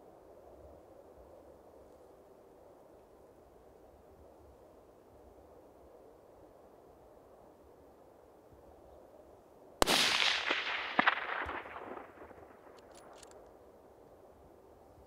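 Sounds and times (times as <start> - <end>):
rifle shot echoing: 9.8 - 13.3
faint clicks: 12.4 - 13.6.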